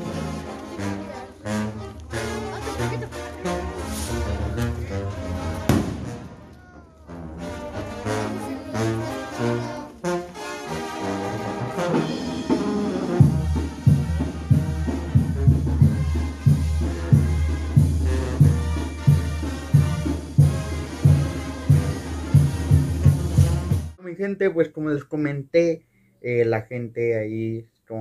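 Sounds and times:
brass band playing: 0:00.0 - 0:24.0
bass and drum beat: 0:12.5 - 0:24.0.

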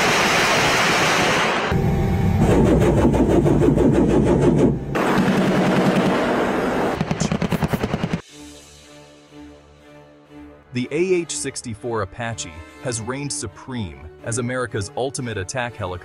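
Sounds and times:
chain gun firing rapid bursts: 0:05.0 - 0:06.4.

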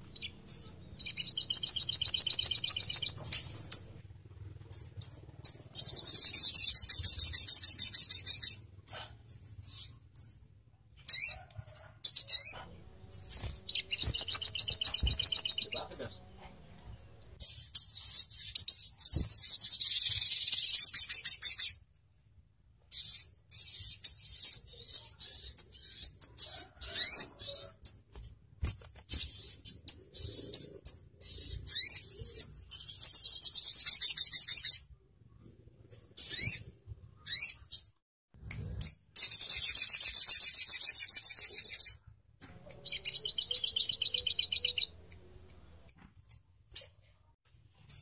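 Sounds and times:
bird chirping and trilling: 0:00.0 - 0:03.9, 0:04.7 - 0:10.4, 0:11.0 - 0:11.4, 0:12.0 - 0:16.2, 0:17.0 - 0:21.8, 0:22.9 - 0:28.0, 0:28.7 - 0:34.8, 0:35.9 - 0:37.9, 0:38.8 - 0:42.0, 0:42.8 - 0:45.0.

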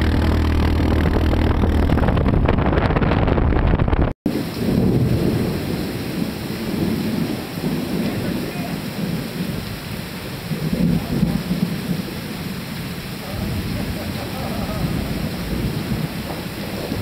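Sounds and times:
heavy rain falling: 0:04.3 - 0:17.0.

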